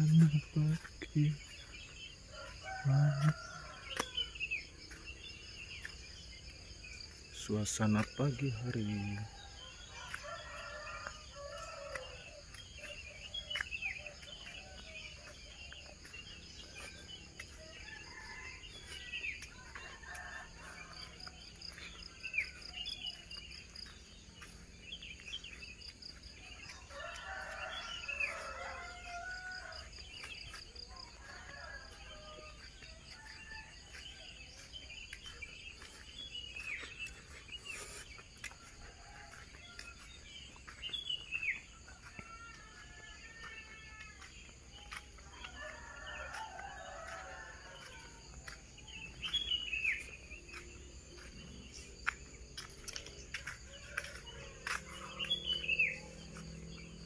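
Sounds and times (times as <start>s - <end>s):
insect chorus pulsing: 0.0s - 43.0s
rooster crowing: 2.2s - 4.5s, 26.5s - 34.7s, 40.8s - 48.6s, 53.9s - 57.0s.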